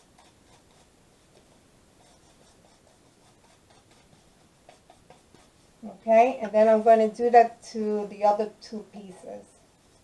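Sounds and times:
paintbrush strokes on cardboard: 0:00.0 - 0:06.0, 0:08.8 - 0:10.0.

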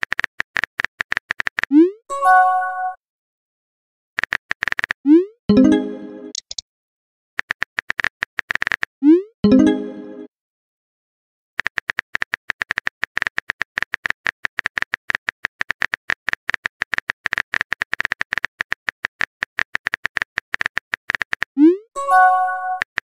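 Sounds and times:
keyboard typing clicks: 0:05.6 - 0:06.6.

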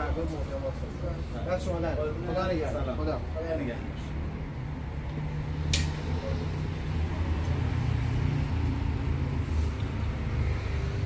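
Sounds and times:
street traffic hum: 0:00.0 - 0:11.0
sharp click: 0:05.7 - 0:06.1.

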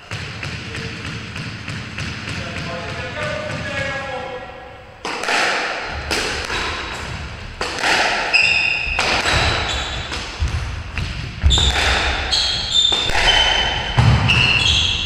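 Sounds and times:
squash ball hitting rackets and walls: 0:00.0 - 0:15.0
sneakers squeaking on wooden floor: 0:05.9 - 0:15.0.

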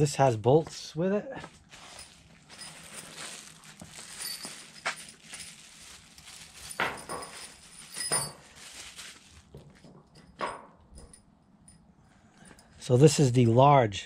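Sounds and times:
plastic bag crinkling: 0:01.6 - 0:09.9
bolts clinking: 0:01.9 - 0:08.5, 0:09.5 - 0:12.8.

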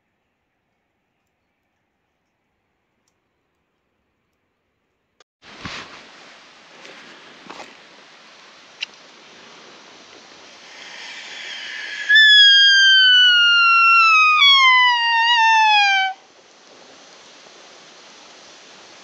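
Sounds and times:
breathy rush of air: 0:06.0 - 0:14.5
deer call whistle sliding down: 0:10.6 - 0:16.2.

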